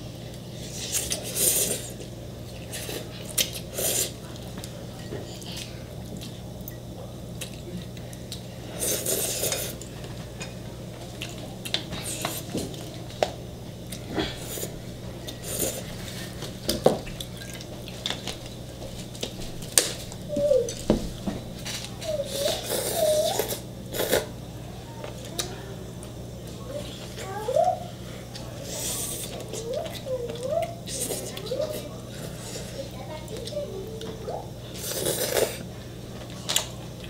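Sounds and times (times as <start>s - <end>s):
steady low hum: 0.0s - 37.0s
noodle slurping: 34.7s - 35.6s.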